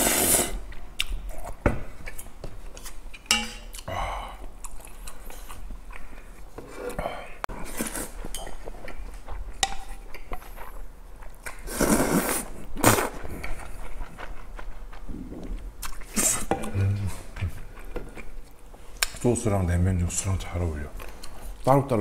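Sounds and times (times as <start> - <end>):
chopsticks clinking on metal bowl: 3.2 - 3.7.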